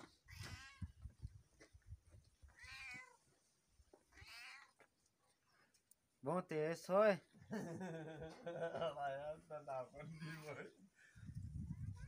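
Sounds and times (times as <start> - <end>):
cat meowing faintly: 2.5 - 3.3, 4.2 - 4.8, 11.6 - 12.0.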